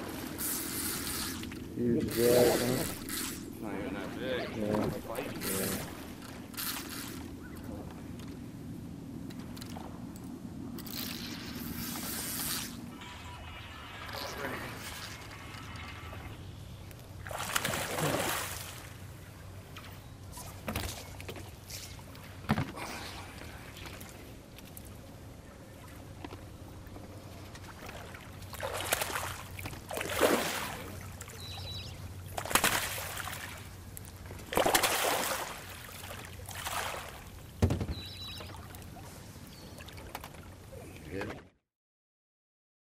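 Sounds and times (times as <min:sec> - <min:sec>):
fish splashing at water surface: 0:17.2 - 0:19.0, 0:27.9 - 0:31.2, 0:34.5 - 0:37.2.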